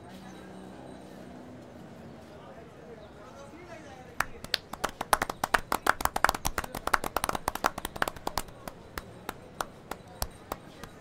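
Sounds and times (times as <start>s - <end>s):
people clapping hands: 4.2s - 11.0s.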